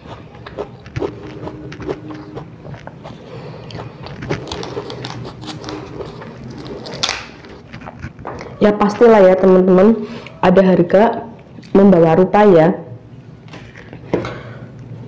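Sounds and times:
crunchy chewing: 0:00.0 - 0:08.6.

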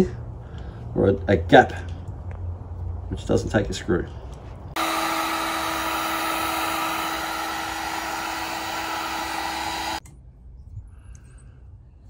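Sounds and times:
heat gun blowing: 0:04.8 - 0:10.0.

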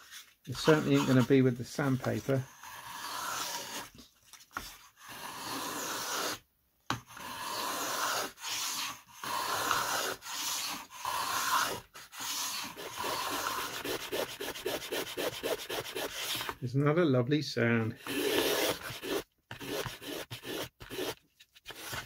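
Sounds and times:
plane shaving wood: 0:00.5 - 0:03.9, 0:05.1 - 0:06.4, 0:07.1 - 0:16.5, 0:18.0 - 0:22.0.

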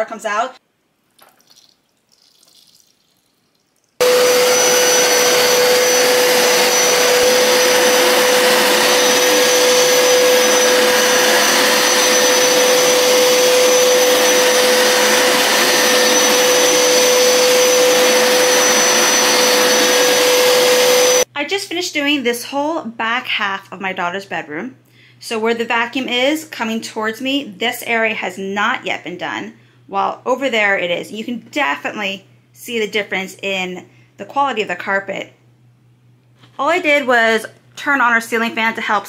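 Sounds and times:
carpet cleaner motor rushing: 0:04.0 - 0:21.3.

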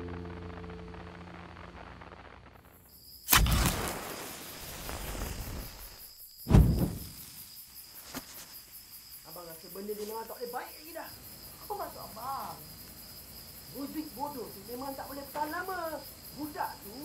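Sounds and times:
low music drone: 0:00.0 - 0:02.5
crickets chirring: 0:00.1 - 0:17.0
match striking and flaring: 0:03.2 - 0:08.6.

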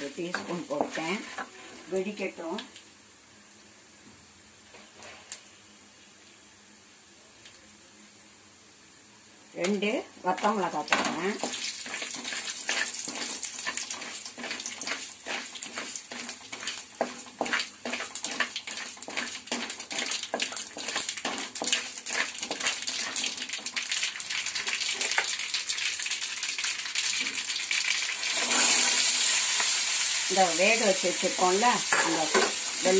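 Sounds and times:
oil sizzling: 0:00.0 - 0:02.9, 0:09.6 - 0:32.9
seeds popping in hot oil: 0:09.6 - 0:32.9.

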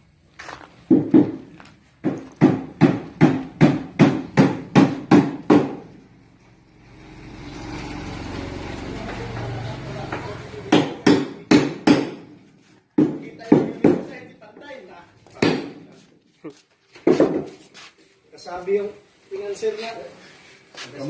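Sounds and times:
hammer striking wood: 0:00.9 - 0:06.0, 0:10.7 - 0:12.4, 0:13.0 - 0:14.1, 0:15.3 - 0:15.9, 0:17.0 - 0:17.5.

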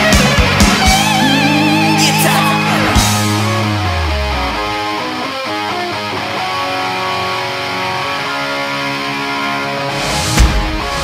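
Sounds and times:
electric guitar picked notes: 0:00.0 - 0:08.5.

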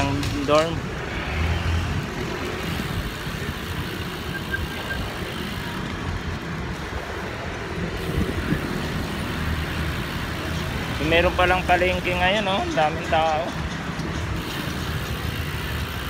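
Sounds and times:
road traffic: 0:00.0 - 0:16.0
wind on microphone: 0:07.0 - 0:09.2.

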